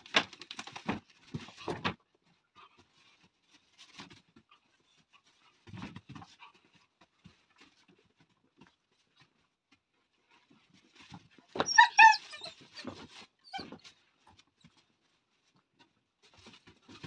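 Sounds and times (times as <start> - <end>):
puppies scuffling: 0.1 - 17.0
puppy yelps: 11.6 - 13.9.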